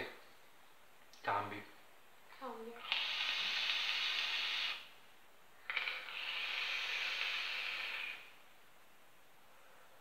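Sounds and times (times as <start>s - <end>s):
vape atomizer draw hissing: 2.8s - 4.9s, 5.7s - 8.4s.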